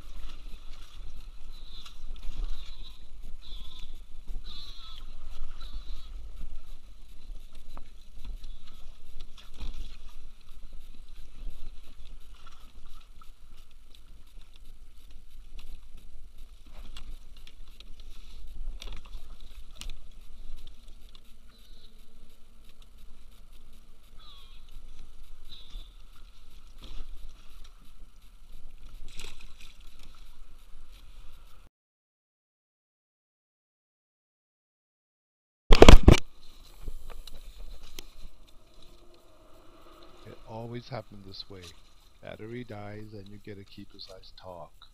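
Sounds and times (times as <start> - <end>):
water lapping against kayak: 0.0 - 31.7, 35.7 - 44.9
wind rumbling on microphone: 0.0 - 31.7, 35.7 - 42.8
faint high-pitched chirps: 20.1 - 28.6.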